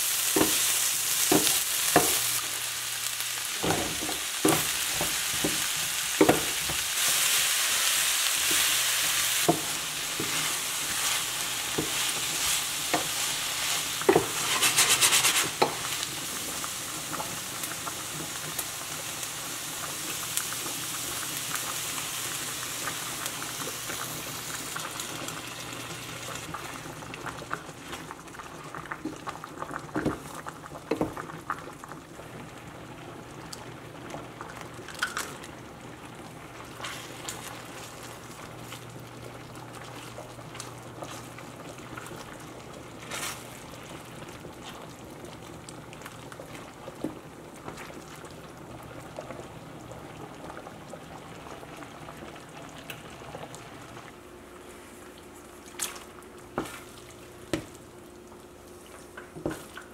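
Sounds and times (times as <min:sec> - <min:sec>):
sauce bubbling and sizzling: 0:00.0 - 0:59.9
wooden spoon scraping pan: 0:09.5 - 0:15.8.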